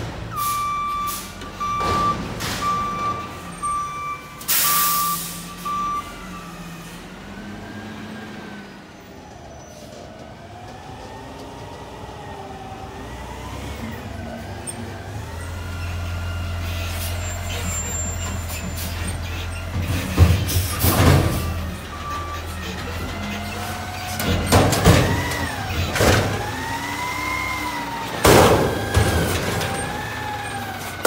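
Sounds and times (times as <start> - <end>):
truck engine rumble: 0.0 - 31.0
truck reversing alarm beeping: 0.2 - 8.4, 14.7 - 31.0
air brake hiss: 4.5 - 5.5.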